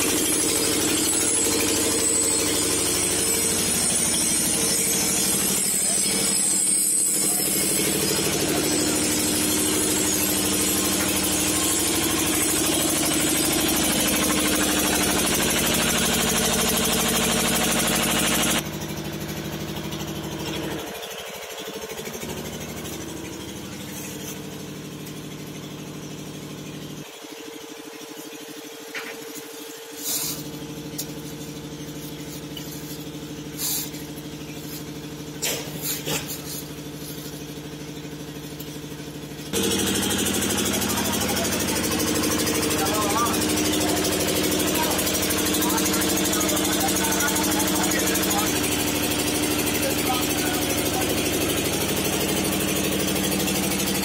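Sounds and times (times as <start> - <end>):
machine engine chugging: 0.0 - 54.0.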